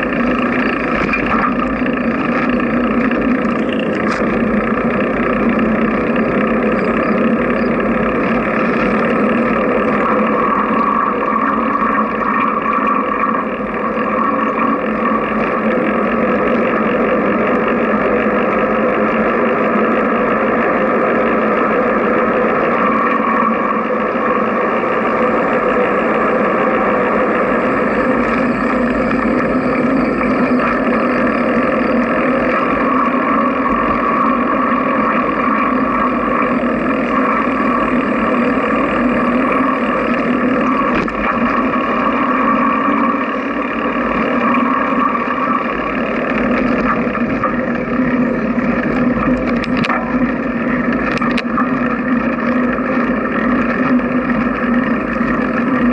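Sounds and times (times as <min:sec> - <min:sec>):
wind and road rush: 0:21.1 - 0:55.9.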